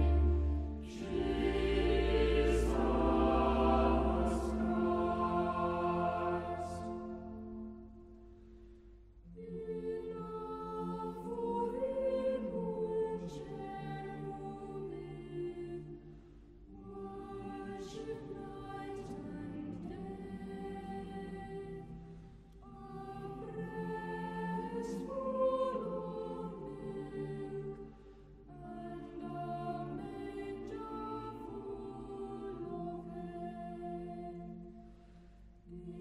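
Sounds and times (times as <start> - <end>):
slow choral singing: 0.0 - 36.0.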